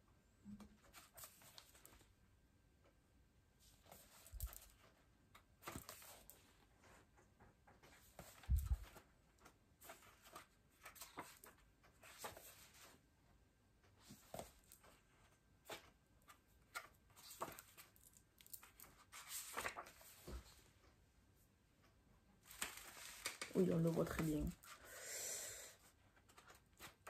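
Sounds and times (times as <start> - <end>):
paper pages rustling: 0.8 - 2.1, 3.6 - 7.1, 7.8 - 13.0, 13.9 - 20.7, 22.4 - 24.8, 26.1 - 27.0.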